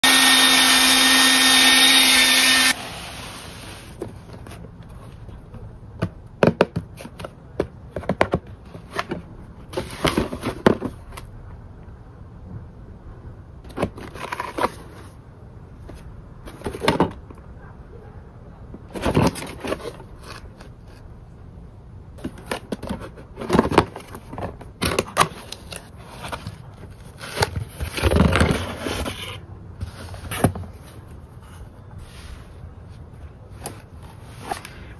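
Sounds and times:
cardboard packaging rustling: 0:13.7 - 0:15.2, 0:18.9 - 0:21.0, 0:22.2 - 0:31.8.

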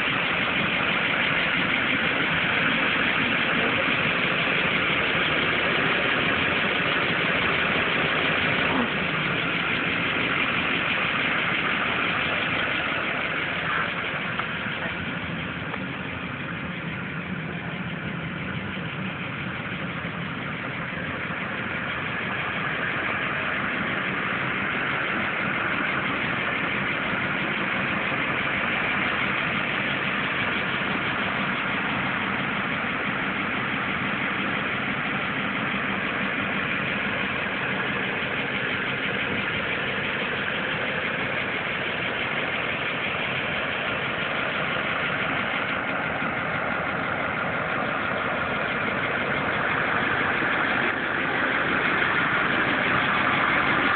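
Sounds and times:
truck engine idling: 0:00.0 - 0:53.9.

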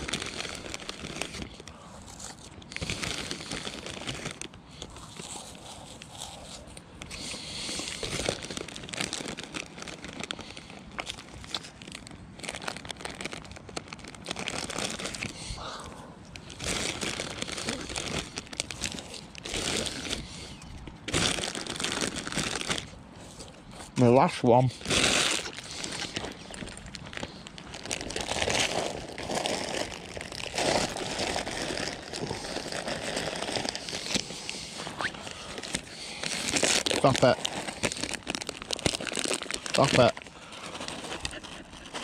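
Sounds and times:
rustling and crunching: 0:00.0 - 0:42.0.

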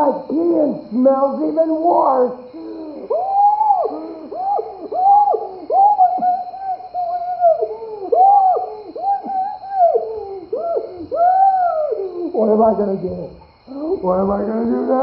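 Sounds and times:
man wailing and sobbing: 0:02.6 - 0:12.5.

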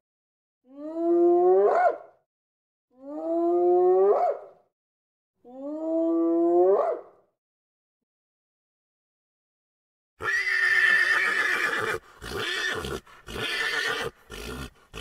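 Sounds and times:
animal's drawn-out call rising: 0:10.2 - 0:15.0.

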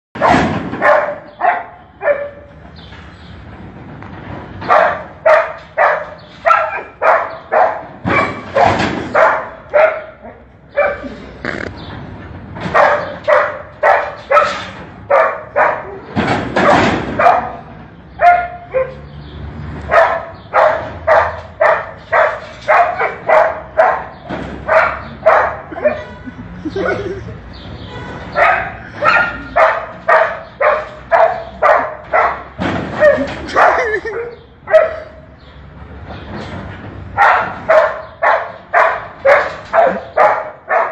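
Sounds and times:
dog barking: 0:00.2 - 0:02.5, 0:04.6 - 0:11.2, 0:12.7 - 0:19.0, 0:19.9 - 0:26.1, 0:28.3 - 0:34.0, 0:34.6 - 0:35.3, 0:37.2 - 0:40.9.

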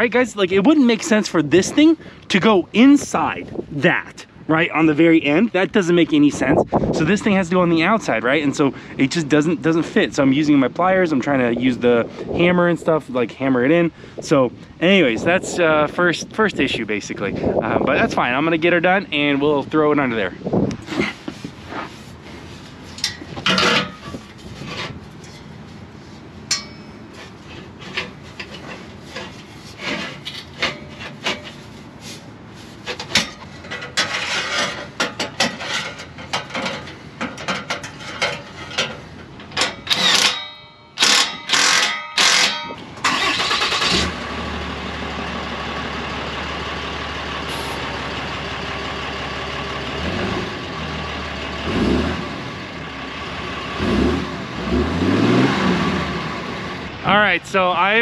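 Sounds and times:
diesel truck engine idling: 0:42.8 - 0:54.9.

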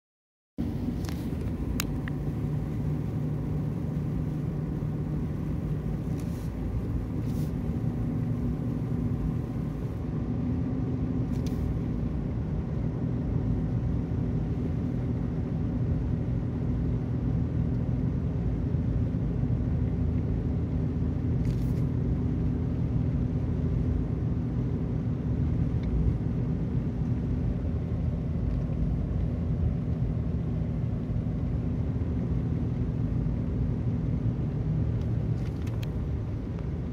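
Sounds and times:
tyre and road noise: 0:00.6 - 0:12.4, 0:25.7 - 0:36.9
car engine hum from inside cabin: 0:00.6 - 0:36.9.

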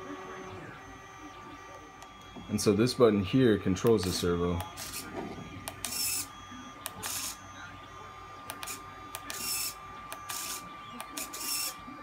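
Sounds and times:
servo motor whirring: 0:04.1 - 0:07.4, 0:08.5 - 0:11.9.

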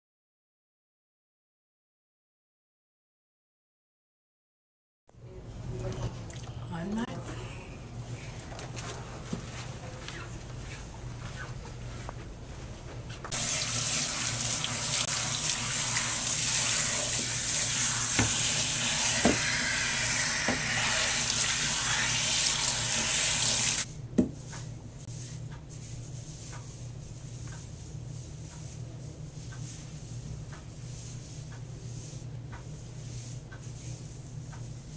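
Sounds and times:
water spraying into sink: 0:13.3 - 0:23.9.

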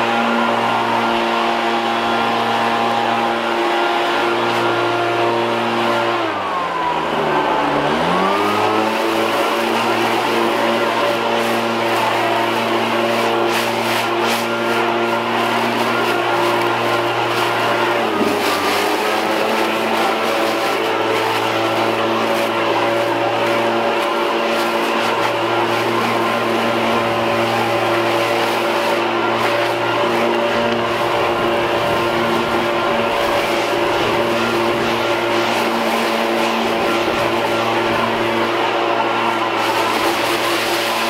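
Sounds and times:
leaf blower engine: 0:00.0 - 0:41.0
air rushing from blower tube: 0:08.2 - 0:41.0.

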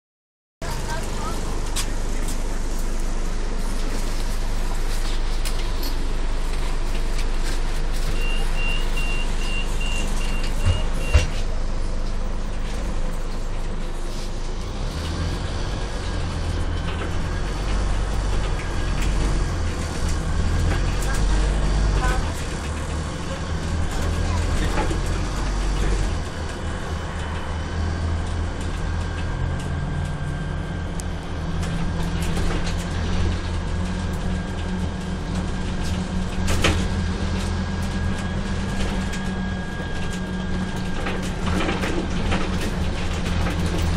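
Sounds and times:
diesel engine idling: 0:00.6 - 0:43.9
bus door warning beeps: 0:08.1 - 0:11.4.

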